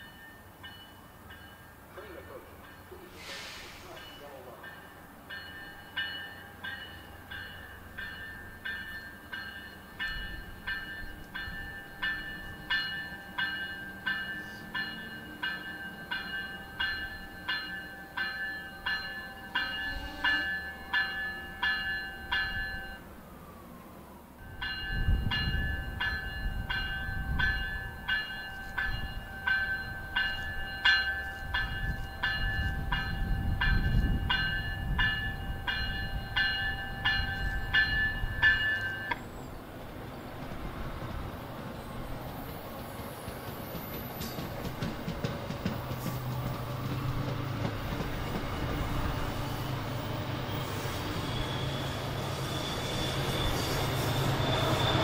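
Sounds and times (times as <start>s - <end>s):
train warning bell ringing: 0.0s - 23.1s, 24.4s - 39.3s, 44.0s - 55.0s
train rumble: 0.0s - 55.0s.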